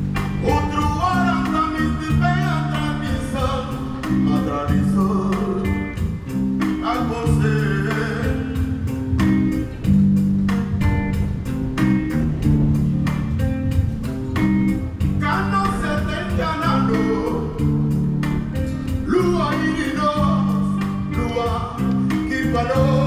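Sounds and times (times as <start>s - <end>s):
bass guitar: 0.0s - 23.0s
man singing: 0.4s - 8.9s, 15.1s - 17.9s, 18.7s - 23.0s
hand drums beating: 3.2s - 22.2s.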